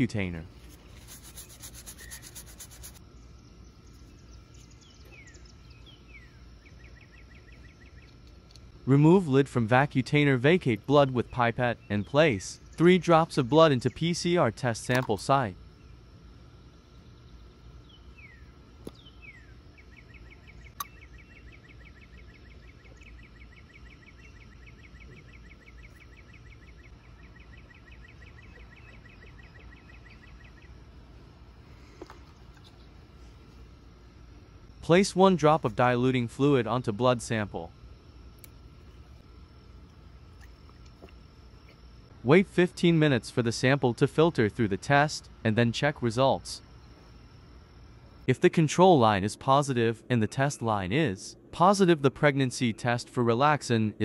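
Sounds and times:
quick rubbing: 0:00.5 - 0:03.0
faint insect-like tone: 0:00.7 - 0:08.8, 0:12.6 - 0:42.3, 0:43.1 - 0:48.3
fast even trill: 0:00.9 - 0:03.0.

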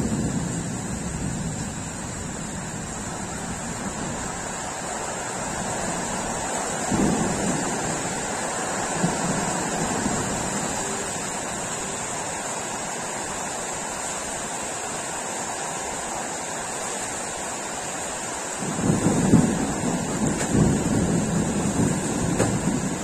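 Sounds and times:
faint low thunder rumble: 0:00.0 - 0:12.4, 0:18.5 - 0:23.0
heavy rain hissing: 0:00.0 - 0:23.0.

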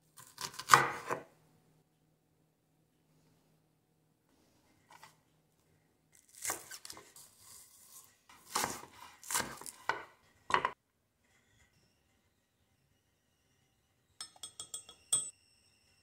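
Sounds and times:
knife chopping on wooden board: 0:00.2 - 0:01.2, 0:08.4 - 0:10.8.

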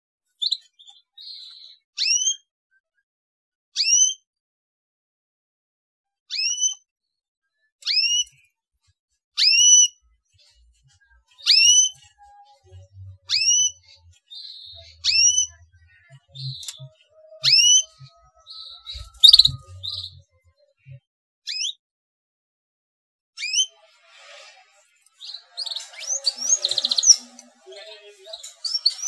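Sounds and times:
soft bird twittering: 0:12.8 - 0:20.3, 0:25.2 - 0:29.0
rising whistled bird chirp: 0:17.4 - 0:20.2.

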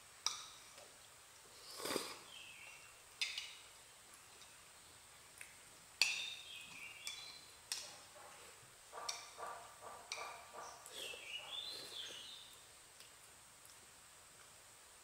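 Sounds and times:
slurping noodles and soup: 0:01.5 - 0:02.3, 0:10.9 - 0:12.2.

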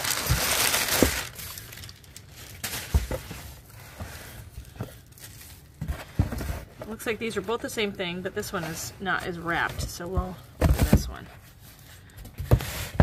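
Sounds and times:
packing paper rustling and crumpling: 0:00.0 - 0:06.7.

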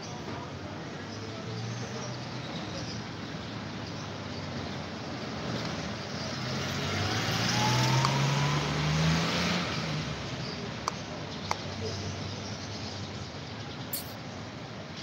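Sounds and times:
vehicle engine noise: 0:04.2 - 0:12.7.

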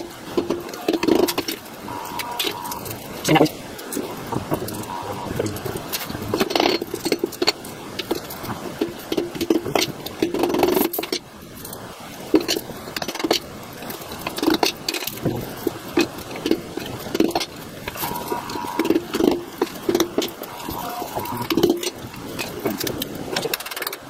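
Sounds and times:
small rattles: 0:00.0 - 0:24.0.

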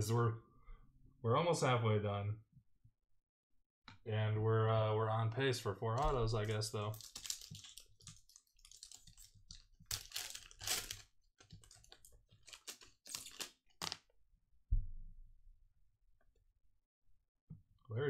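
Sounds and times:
foil pack crinkling and tearing: 0:06.5 - 0:14.0.

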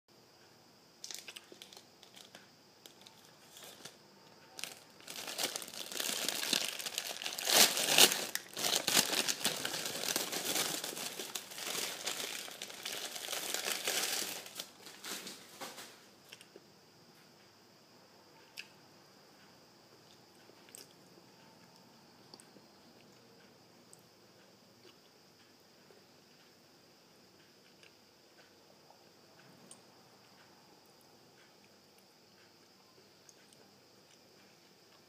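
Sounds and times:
packaging crinkling and tearing: 0:01.0 - 0:04.0, 0:04.6 - 0:15.8.

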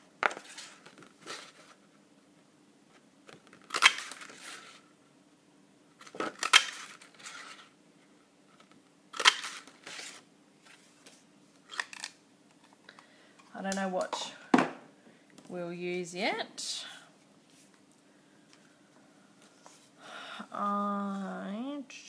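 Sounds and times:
paper rustling: 0:00.2 - 0:01.9.

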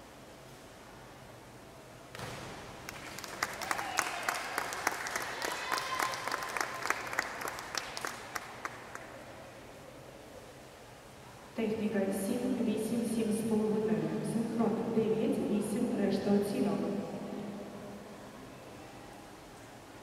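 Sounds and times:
scattered applause: 0:02.8 - 0:09.3.

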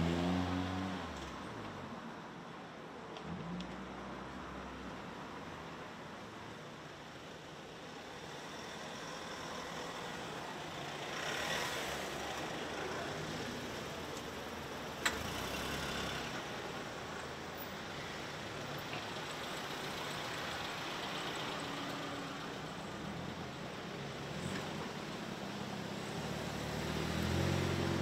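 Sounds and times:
road traffic noise: 0:00.0 - 0:28.0.

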